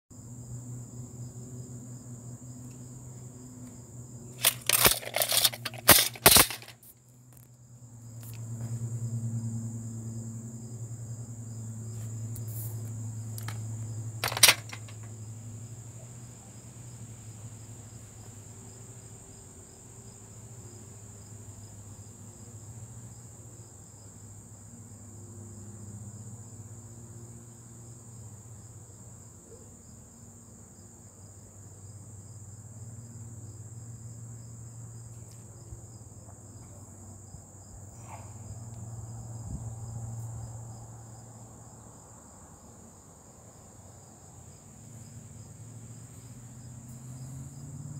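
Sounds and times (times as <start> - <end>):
insects trilling: 0.2 - 47.9
clattering clicks: 4.4 - 6.9, 13.4 - 13.6, 14.2 - 15.1.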